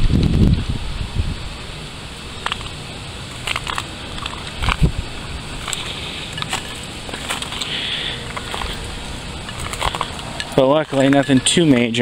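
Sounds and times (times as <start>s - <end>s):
twigs and leaves crackling: 2.3s - 11.9s.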